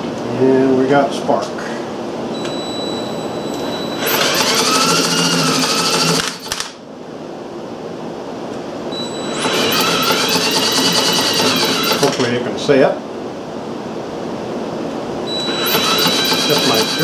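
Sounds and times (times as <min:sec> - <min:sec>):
drill motor whirring with ticking: 0:04.0 - 0:06.7, 0:09.3 - 0:12.3, 0:15.3 - 0:17.0.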